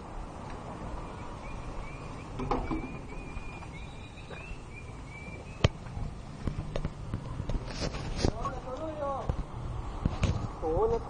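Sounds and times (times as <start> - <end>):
outdoor background noise: 0.0 - 11.0
small bird chirping: 1.0 - 5.8.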